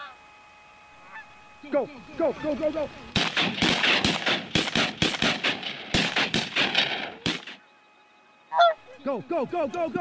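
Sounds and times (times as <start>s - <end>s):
shotgun fire volley: 3.1s - 7.6s.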